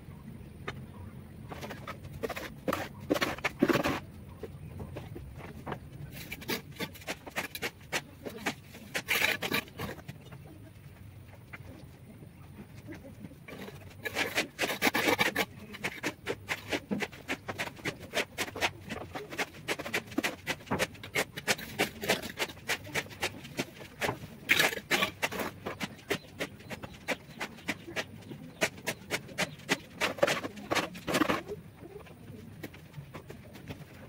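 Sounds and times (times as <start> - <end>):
trowel scraping mortar: 1.5 - 4.0, 6.1 - 10.1, 13.5 - 34.0
sharp taps on bricks: 13.5 - 34.0.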